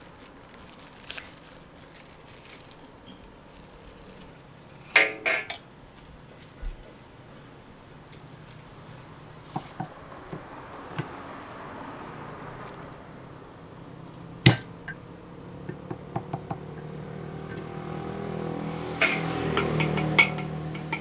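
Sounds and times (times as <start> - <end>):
metal utensils clinking: 4.8 - 5.7, 19.0 - 21.0
loud metal clank: 4.9 - 5.6, 19.0 - 21.0.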